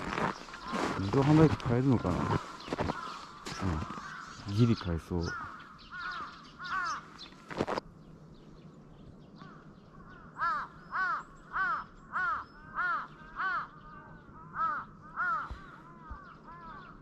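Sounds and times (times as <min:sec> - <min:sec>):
crow cawing: 0:00.0 - 0:07.7, 0:09.4 - 0:17.0.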